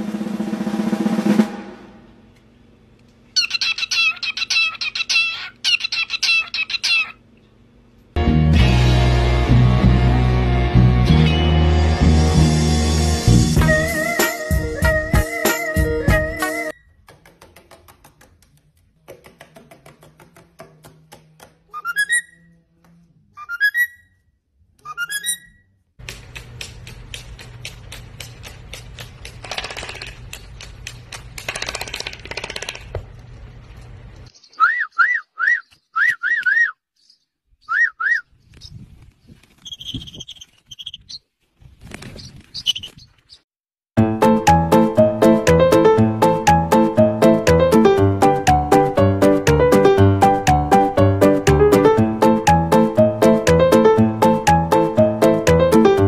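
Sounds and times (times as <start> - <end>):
drum roll: 0.0 - 2.3
cockatiel whistling: 24.8 - 25.6, 34.5 - 36.8, 37.6 - 38.2.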